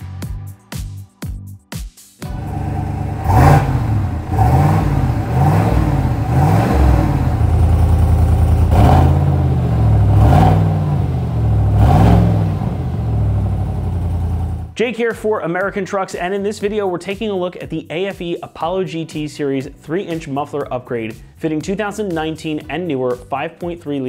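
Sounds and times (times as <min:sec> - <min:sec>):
truck engine idling and revving: 0:02.2 - 0:14.8.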